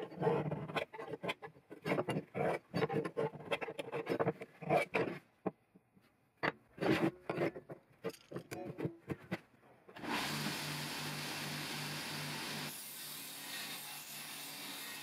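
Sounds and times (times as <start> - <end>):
metal tools on wooden workbench: 0.0 - 10.0.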